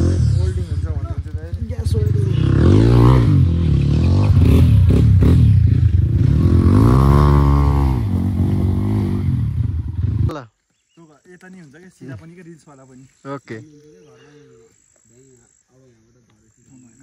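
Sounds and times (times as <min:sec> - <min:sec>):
dirt bike engine revving: 0:00.0 - 0:10.3.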